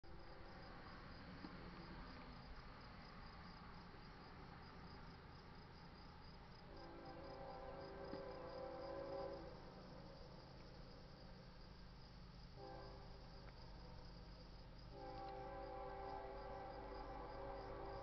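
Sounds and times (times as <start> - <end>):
faint insect chirping: 0.1 - 18.0
faint steady chord: 11.3 - 18.0.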